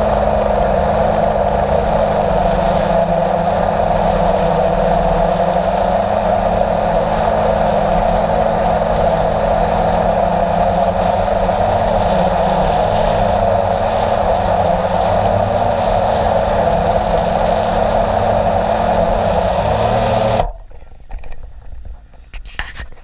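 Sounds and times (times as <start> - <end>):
drone motors and propellers: 0.0 - 20.8.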